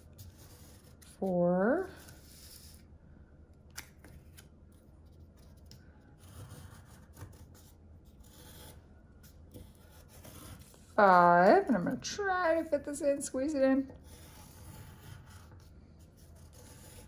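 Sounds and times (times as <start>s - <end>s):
pencil scratching on paper: 0.0s - 2.8s, 6.2s - 11.3s, 13.5s - 17.0s.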